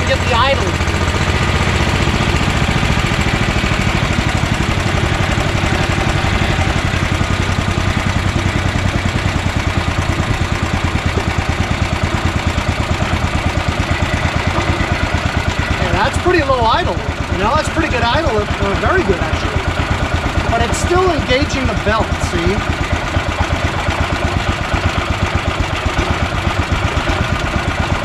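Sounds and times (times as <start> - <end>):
engine idling: 0.0 - 28.0.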